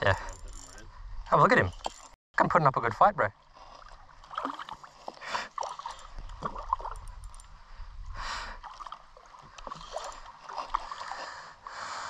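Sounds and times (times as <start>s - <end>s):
water splashing in shallows: 3.4s - 7.2s, 8.4s - 11.6s.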